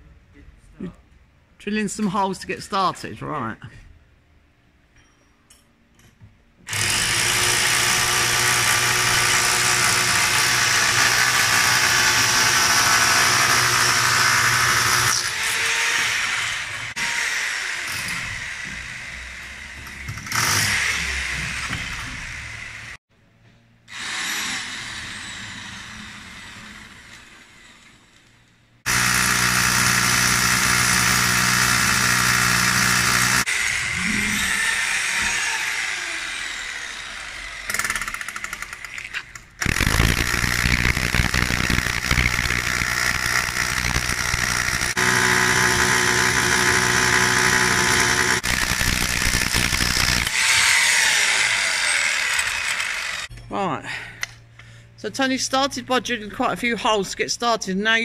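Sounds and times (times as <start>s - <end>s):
hammer drill boring into concrete: 6.7s - 22.7s, 23.9s - 27.9s, 28.9s - 53.3s.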